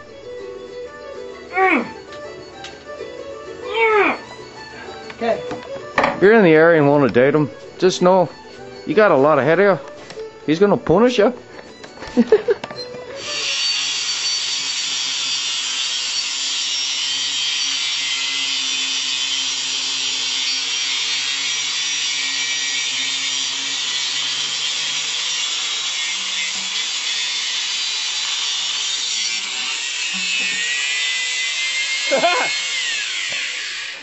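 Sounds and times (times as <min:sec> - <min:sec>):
angle grinder grinding steel: 0:11.7 - 0:34.0.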